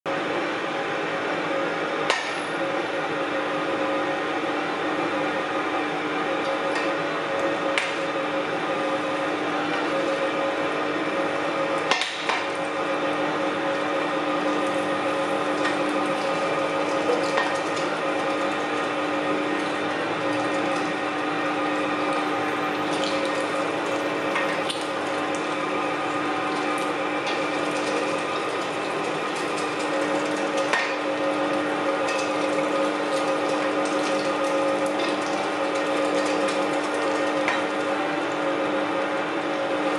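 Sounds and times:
electric meat grinder running: 0.1 - 39.9.

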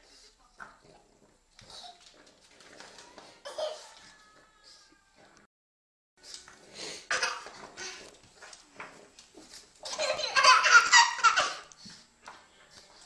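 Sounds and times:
baby laughing: 7.1 - 8.0, 9.8 - 11.7.

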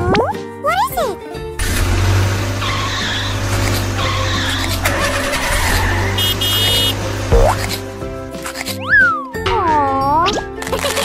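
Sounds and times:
children's background music: 0.0 - 11.0
cartoon bus engine rumble: 1.5 - 8.6
tyres skidding: 1.6 - 8.8.

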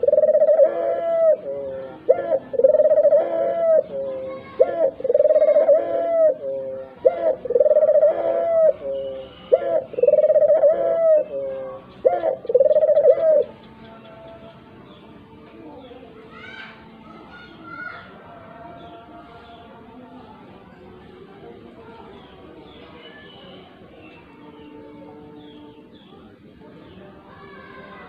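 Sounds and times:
dove cooing: 0.0 - 13.7.

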